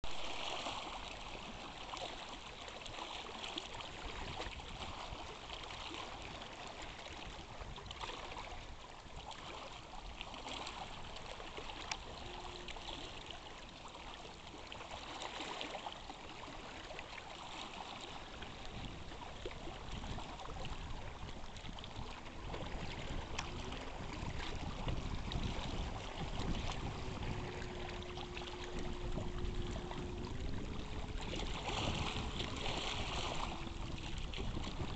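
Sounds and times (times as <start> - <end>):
water lapping against rocky shore: 0.0 - 34.9
faint steady hum: 11.7 - 15.0, 18.2 - 34.9.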